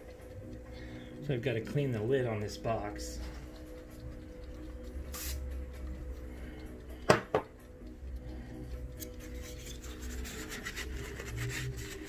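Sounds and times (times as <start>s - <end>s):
faint background music: 0.0s - 12.0s
objects knocking on hard surface: 7.1s - 7.4s.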